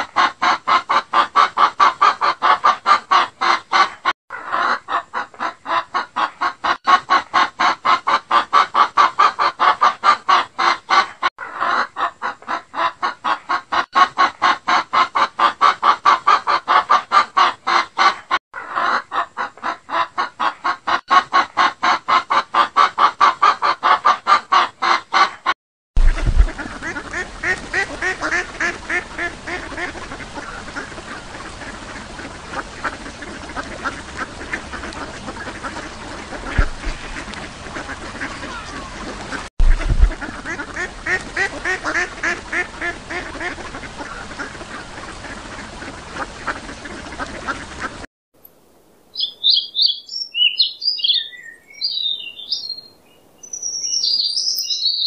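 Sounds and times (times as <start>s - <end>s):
hen clucking: 0.0s - 48.0s
ducks quacking: 0.0s - 48.1s
bird high chirps: 49.1s - 55.0s.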